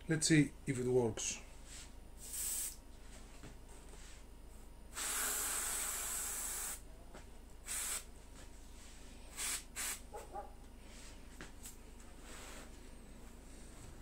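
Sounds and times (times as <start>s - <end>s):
airbrush spraying hiss: 2.2s - 2.8s, 5.0s - 6.8s, 7.7s - 8.1s, 9.3s - 10.0s.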